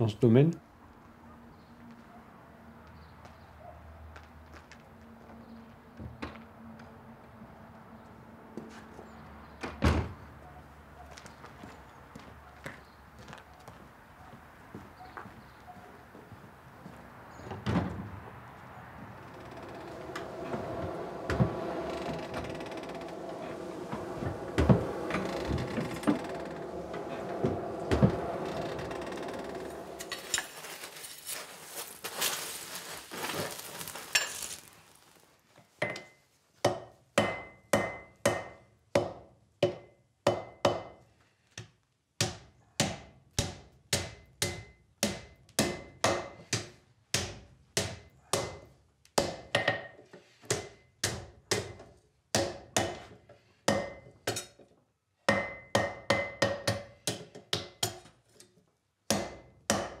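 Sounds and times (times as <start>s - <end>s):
forge fire rushing and crackling: 19.0s - 35.2s
hammer striking iron on anvil: 35.8s - 40.9s, 42.8s - 46.4s, 53.7s - 54.4s, 55.3s - 57.2s, 59.1s - 60.0s.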